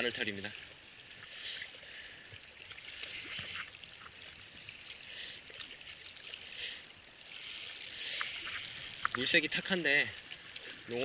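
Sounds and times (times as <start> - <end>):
water lapping softly: 0.0 - 11.0
fishing reel drag buzzing: 3.0 - 3.3, 5.5 - 9.7.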